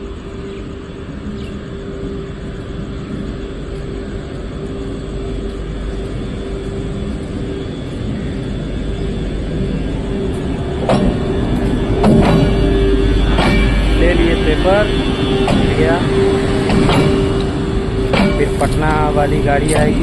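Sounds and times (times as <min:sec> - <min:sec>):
electric locomotive hum and whine: 0:00.0 - 0:20.0
sharp metal clank: 0:18.1 - 0:18.8.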